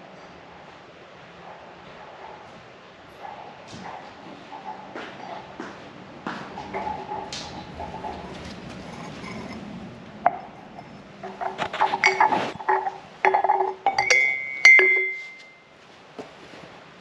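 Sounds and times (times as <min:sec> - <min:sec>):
mugs knocking on concrete floor: 0:04.9 - 0:09.6, 0:10.3 - 0:15.5
ceramic mugs clinking: 0:06.3 - 0:15.7.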